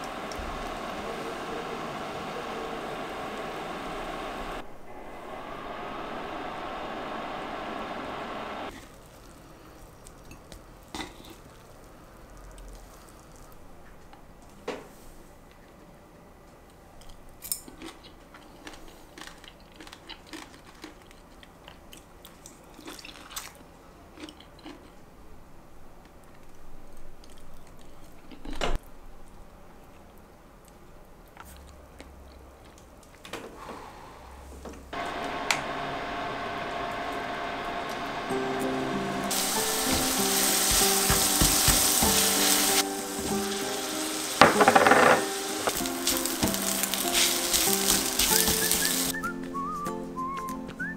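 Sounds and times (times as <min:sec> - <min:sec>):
garlic sizzling in hot oil: 0:00.0 - 0:04.6, 0:35.0 - 0:49.2
close-up chewing: 0:08.7 - 0:13.6, 0:17.0 - 0:25.0, 0:26.2 - 0:28.6.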